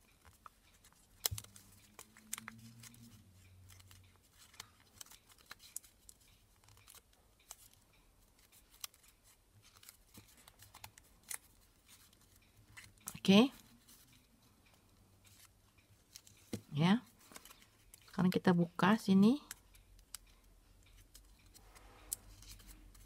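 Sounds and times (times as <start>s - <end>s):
paper rustling and crackling: 0.0s - 7.8s.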